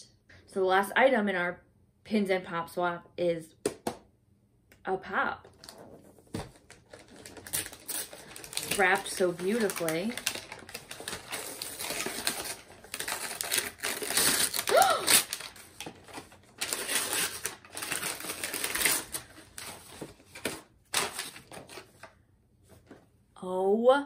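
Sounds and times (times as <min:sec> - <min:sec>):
tissue paper crinkling: 0:05.6 - 0:22.1.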